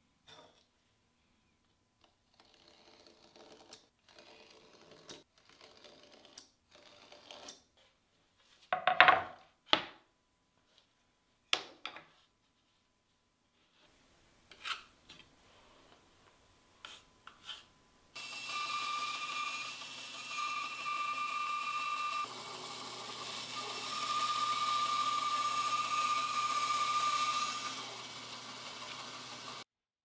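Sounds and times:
bandsaw cutting plywood: 18.2 - 29.6.

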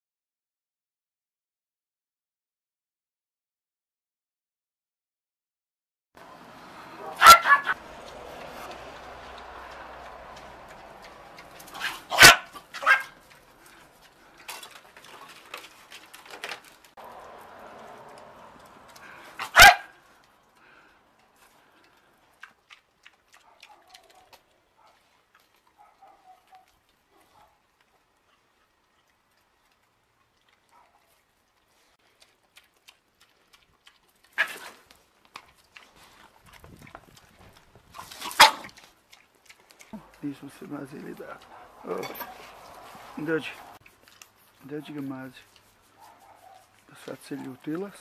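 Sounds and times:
small dog barking: 7.0 - 7.8, 11.8 - 13.2, 19.4 - 20.0, 23.4 - 25.0, 25.8 - 27.6, 30.7 - 31.1, 46.0 - 46.8.

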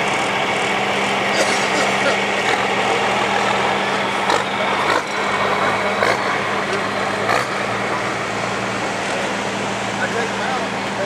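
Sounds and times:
roller and tractor engine hum: 0.0 - 11.0.

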